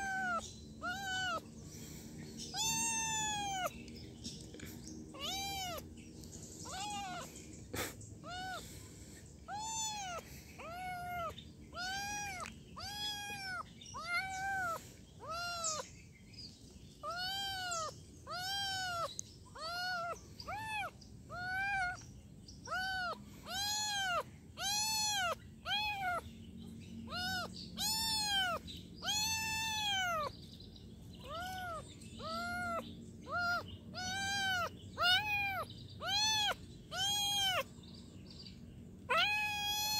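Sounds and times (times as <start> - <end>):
kitten meowing: 0.0 - 1.5, 2.5 - 3.8, 5.1 - 5.9, 6.6 - 7.3, 8.2 - 8.7, 9.5 - 15.9, 17.0 - 22.0, 22.6 - 26.2, 27.1 - 30.3, 31.2 - 37.7, 39.0 - 39.9.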